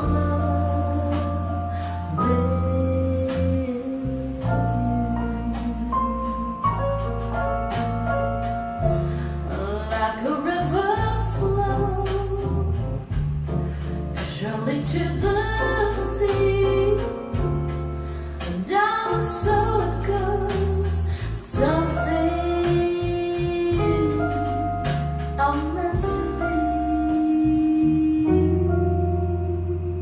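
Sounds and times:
song with singer over bass line: 14.3s - 30.0s.

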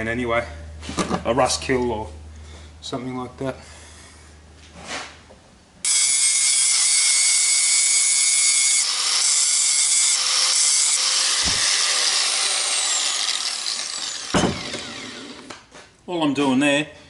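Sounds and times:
angle grinder cutting steel: 5.8s - 15.6s.

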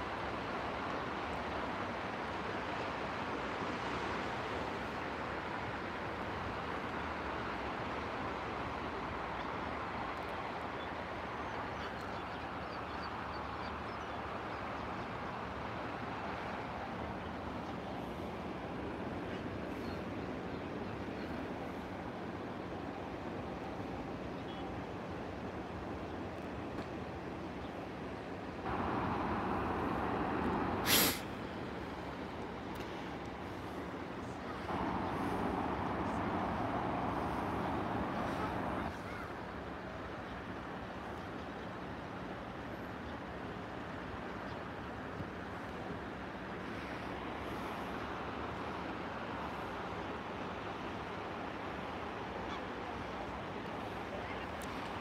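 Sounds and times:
distant traffic: 0.0s - 55.0s
surf: 28.4s - 55.0s
loud hiss: 28.7s - 31.4s.

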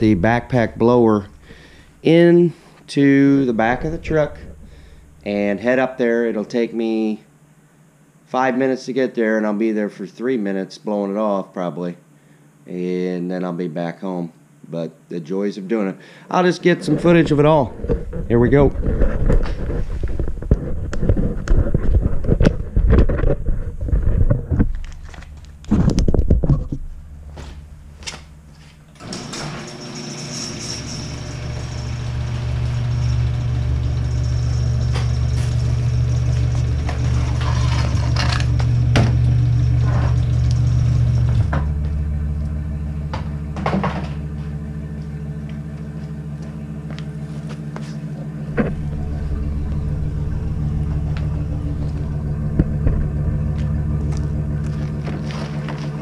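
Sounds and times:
pickup truck engine idling: 0.0s - 2.2s, 3.4s - 5.3s, 32.0s - 56.0s
equipment thumping and scraping: 16.8s - 29.0s, 41.0s - 42.0s, 43.1s - 44.6s, 47.2s - 56.0s.

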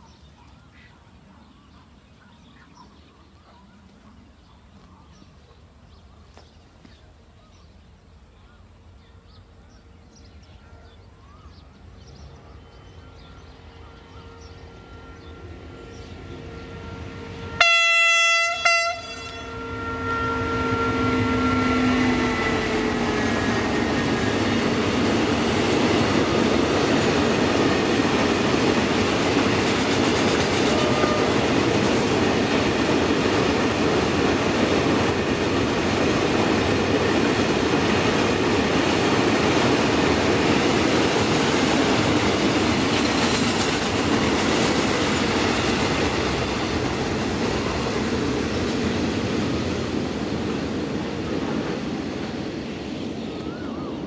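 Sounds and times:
locomotive passing: 11.0s - 54.0s
train horn blasts: 12.8s - 24.6s, 30.5s - 32.2s.

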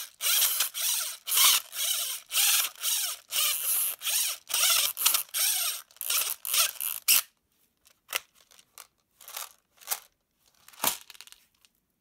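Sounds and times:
magazine winding wheel ratcheting: 0.0s - 7.3s.

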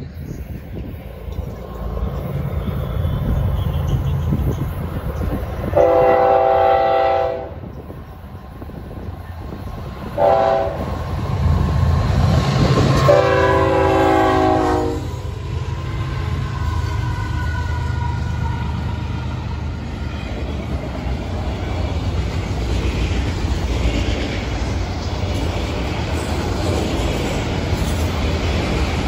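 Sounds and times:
train engine and wheels rumbling: 0.0s - 29.0s
train air horn blasts: 5.7s - 7.7s, 10.2s - 10.9s, 13.0s - 15.2s.

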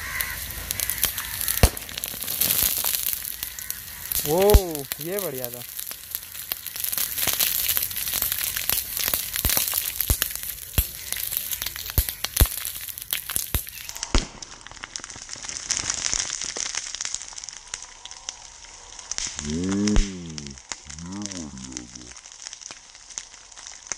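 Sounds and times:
sodium fizzing on water: 0.0s - 14.0s
sharp pops: 0.3s - 16.8s, 19.1s - 22.2s.

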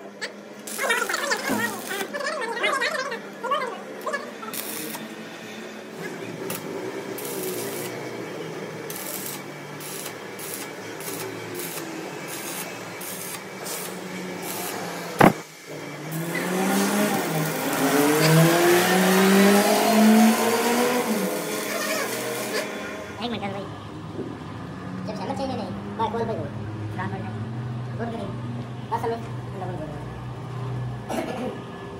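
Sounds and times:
welding crackling and hissing: 0.6s - 2.5s, 4.0s - 5.2s, 5.9s - 8.2s, 8.8s - 19.9s, 21.1s - 23.0s.

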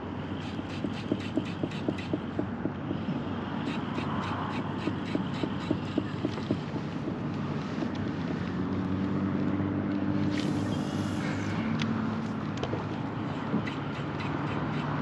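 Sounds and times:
light regular ticking: 0.2s - 9.5s, 11.8s - 15.0s.

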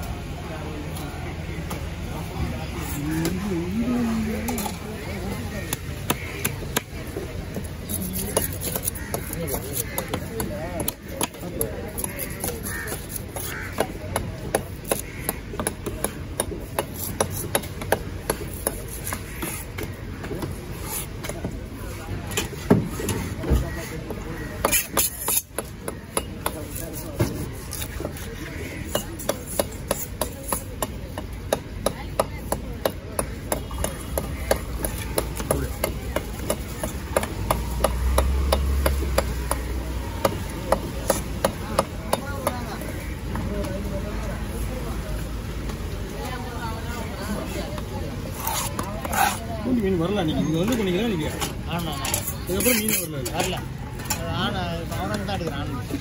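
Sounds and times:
knife scraping fish scales: 7.7s - 10.2s, 24.6s - 30.7s, 48.2s - 49.5s, 51.3s - 53.6s
cleaver chopping on wooden block: 28.9s - 42.7s.

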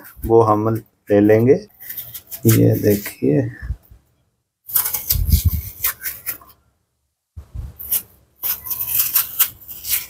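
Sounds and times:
spoon scraping watermelon: 1.8s - 3.2s, 7.8s - 10.0s.

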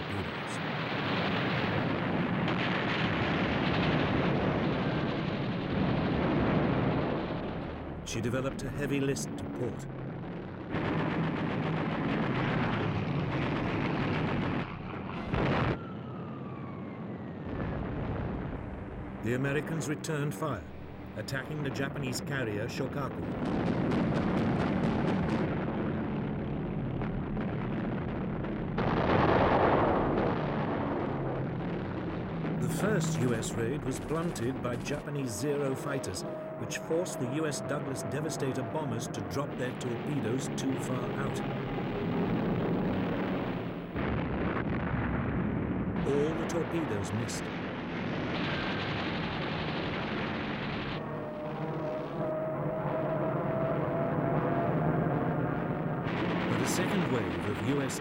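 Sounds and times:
explosions and battle rumble: 0.0s - 58.0s.

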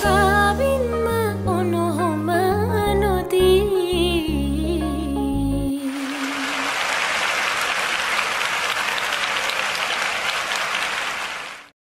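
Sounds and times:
audience clapping: 5.9s - 11.8s.

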